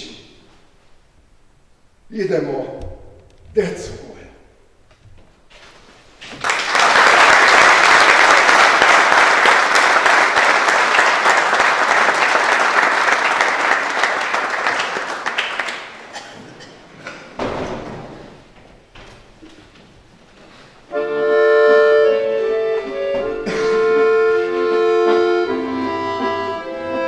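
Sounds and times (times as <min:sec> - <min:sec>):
audience applauding: 0:06.2 - 0:16.2.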